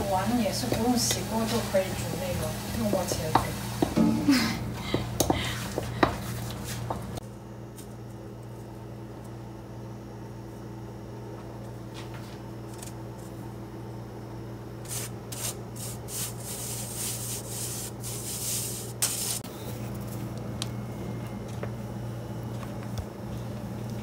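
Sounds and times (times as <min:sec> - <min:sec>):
low steady hum: 0:00.0 - 0:24.0
flour rubbed through mesh sieve: 0:14.9 - 0:19.4.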